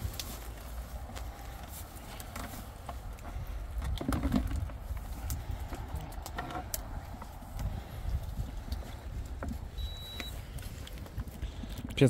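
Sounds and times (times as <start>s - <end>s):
wind on microphone: 3.0s - 11.8s.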